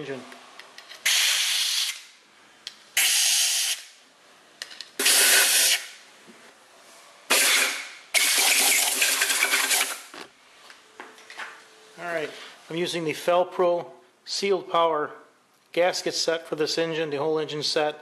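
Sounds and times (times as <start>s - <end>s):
compressed air blasts hissing: 1.0s - 2.2s, 3.0s - 4.0s, 5.0s - 6.0s, 7.3s - 10.1s.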